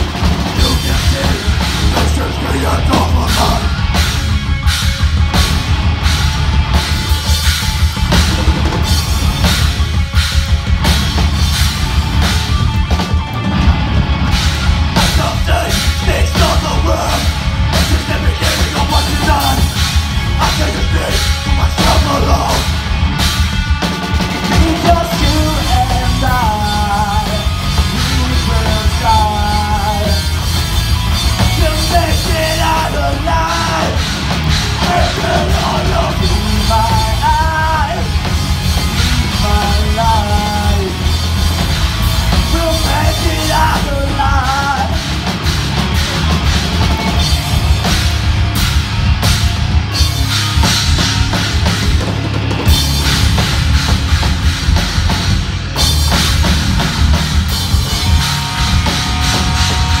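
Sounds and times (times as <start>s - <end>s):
bass guitar: 0.0s - 60.0s
drum kit: 0.0s - 60.0s
electric guitars: 0.0s - 60.0s
person singing: 0.5s - 3.8s, 15.0s - 19.8s, 20.4s - 22.8s, 24.5s - 30.4s, 31.4s - 34.1s, 34.8s - 38.1s, 39.2s - 41.1s, 42.3s - 45.1s.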